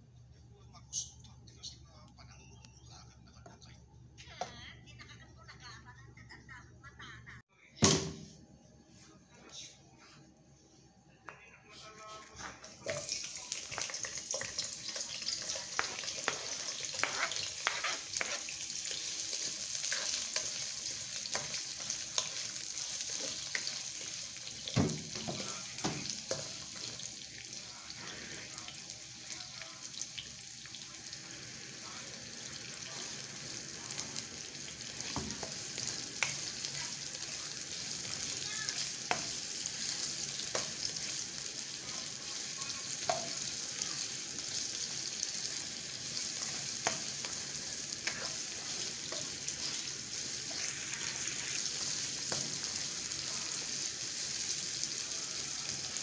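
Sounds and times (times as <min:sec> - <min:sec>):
onions sizzling in oil: 0:12.8 - 0:56.0
spatula scraping and tapping pan: 0:13.8 - 0:24.1, 0:39.0 - 0:41.2, 0:46.0 - 0:50.7.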